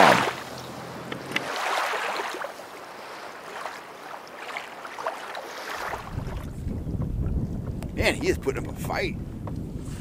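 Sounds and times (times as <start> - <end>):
steady wash of water: 0.0 - 6.8.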